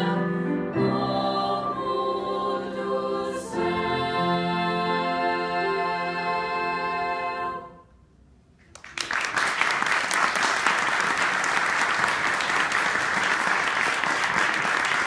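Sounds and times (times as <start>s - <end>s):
women's chorus singing: 0.0s - 7.8s
audience applause: 8.7s - 15.0s.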